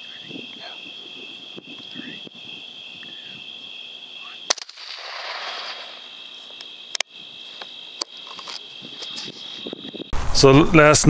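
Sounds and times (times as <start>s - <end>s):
insects chirring: 0.0s - 11.0s
rifle shot: 4.5s - 6.0s.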